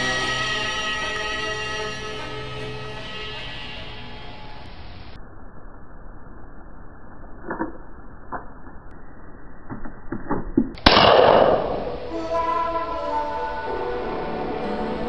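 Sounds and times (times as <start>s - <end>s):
gunshot: 10.8s - 12.1s.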